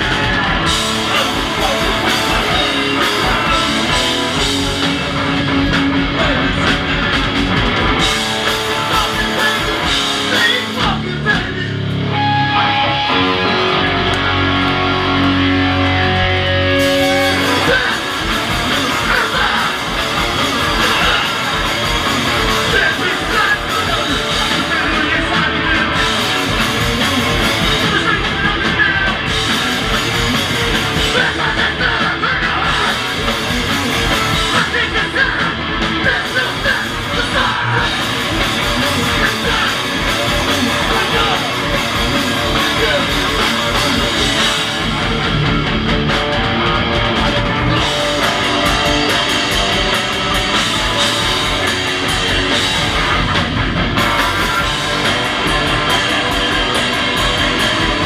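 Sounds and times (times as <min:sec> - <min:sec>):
shouted vocals: 0:00.0 - 0:04.8, 0:08.0 - 0:44.8
punk band playing live: 0:00.0 - 0:58.0.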